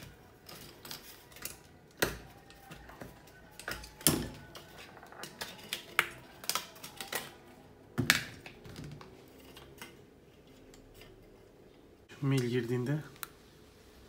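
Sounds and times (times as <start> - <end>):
plastic pieces clicking and knocking: 0.3 - 7.4.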